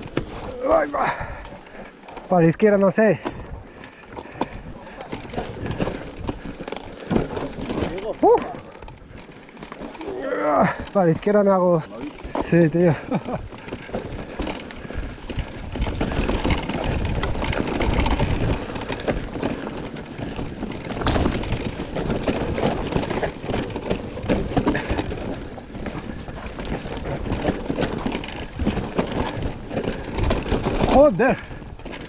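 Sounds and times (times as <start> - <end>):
bike rattling and knocking: 0.0 - 32.0
tyres rumbling over gravel: 0.0 - 32.0
wind buffeting microphone: 12.1 - 32.0.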